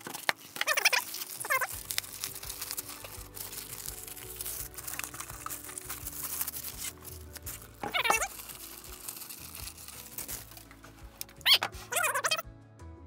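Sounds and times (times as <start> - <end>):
plastic bag crinkling: 0.0 - 12.4
background music: 0.0 - 13.0.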